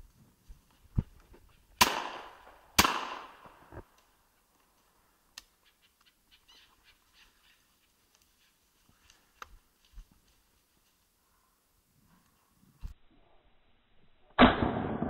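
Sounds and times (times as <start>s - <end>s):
shotgun shots: 1.8s - 3.6s, 14.4s - 15.0s.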